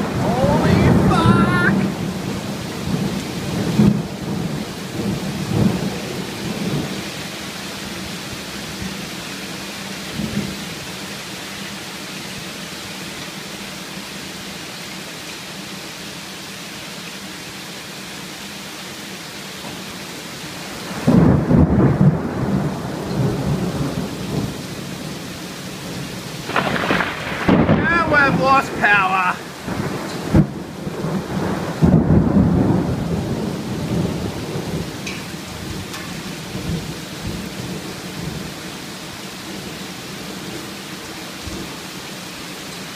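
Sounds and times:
rain pouring: 0.0s - 42.9s
rumbling thunder: 0.8s - 7.0s, 20.8s - 25.0s, 25.9s - 28.8s, 29.4s - 38.5s.

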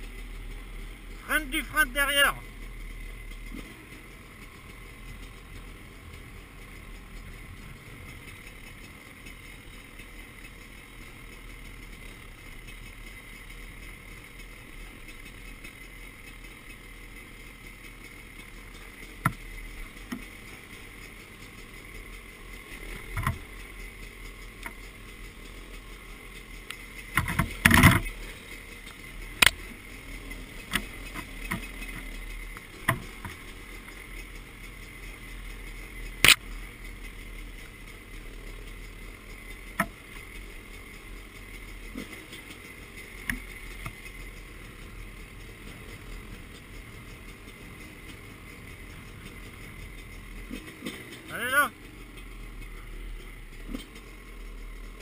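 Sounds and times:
motorcycle engine hum: 0.0s - 55.0s
motorcycle knocks and rattles: 3.3s - 39.0s, 39.7s - 55.0s.

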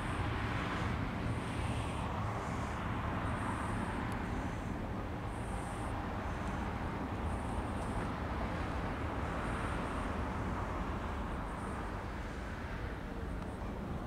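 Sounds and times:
deep jet engine noise: 0.0s - 14.0s.

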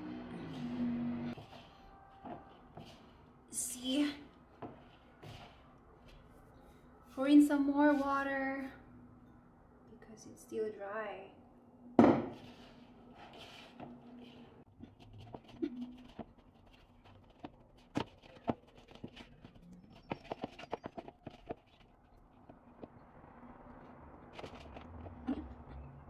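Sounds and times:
hands squishing dough: 12.4s - 23.0s.

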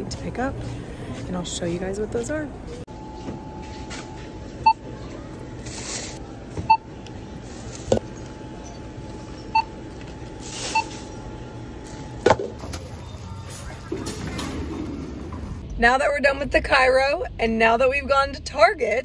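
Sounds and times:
barcode scanner beeps: 9.5s - 9.8s, 10.6s - 11.2s.

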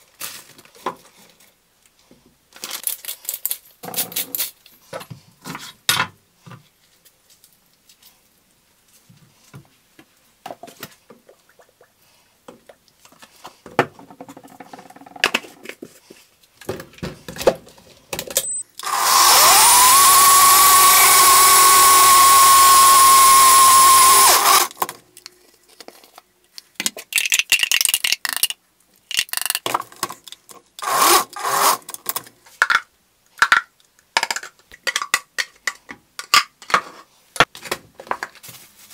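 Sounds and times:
electric motor running: 18.8s - 24.7s, 30.8s - 31.8s.

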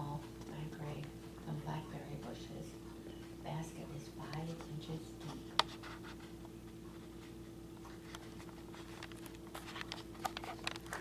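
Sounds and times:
steady low hum: 0.0s - 11.0s
camera handling clicks and rustles: 8.1s - 11.0s.

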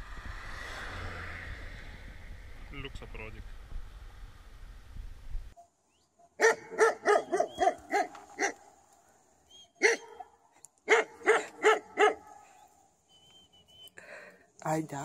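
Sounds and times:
dog barking: 5.6s - 8.7s, 9.8s - 12.6s.

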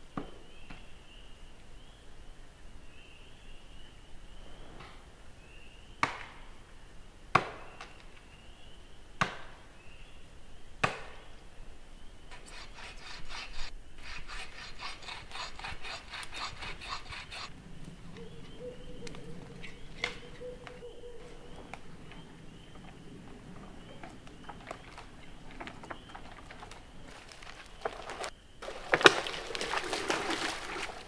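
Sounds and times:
axe chopping wood: 7.3s - 7.8s, 9.2s - 9.6s, 10.8s - 11.2s
saw strokes: 12.3s - 17.5s.

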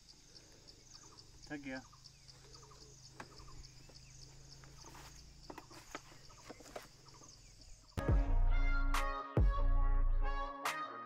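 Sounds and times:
insects chirping: 0.0s - 8.0s.

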